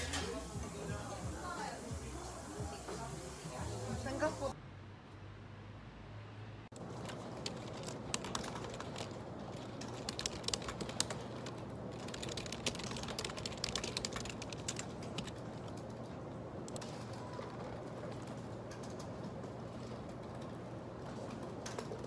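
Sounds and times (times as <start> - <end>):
fast typing on keyboard: 6.8 - 16.1, 16.7 - 22.0.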